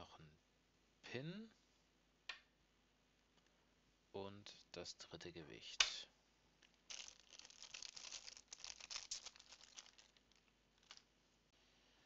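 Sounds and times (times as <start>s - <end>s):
plastic bag crinkling: 6.7s - 11.1s.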